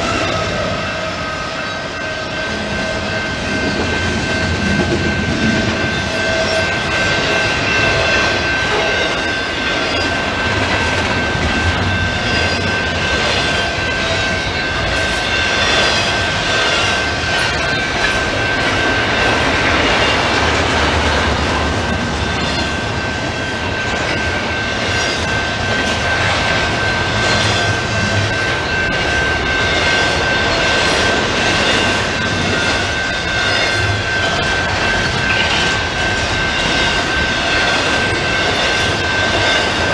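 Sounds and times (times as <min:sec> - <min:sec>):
freight train wheels rumbling: 0:00.0 - 0:39.9.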